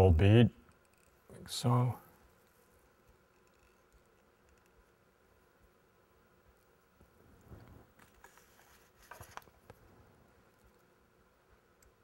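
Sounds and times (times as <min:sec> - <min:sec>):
faint rustling: 0:07.0 - 0:11.0.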